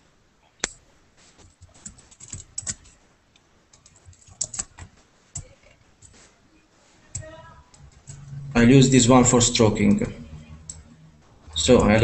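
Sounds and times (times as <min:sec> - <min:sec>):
keyboard keys clicking: 0:01.5 - 0:03.0, 0:03.7 - 0:06.2.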